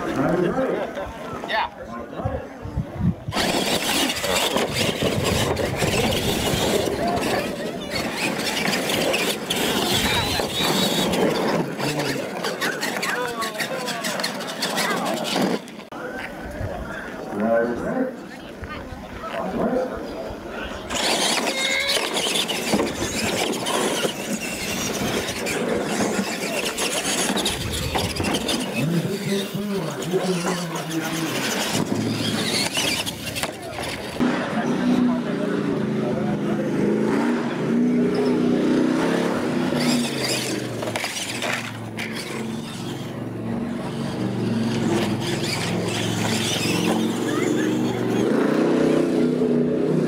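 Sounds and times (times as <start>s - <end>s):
electric motors whining: 3.3s - 15.9s, 20.7s - 34.3s, 37.7s - 50.0s.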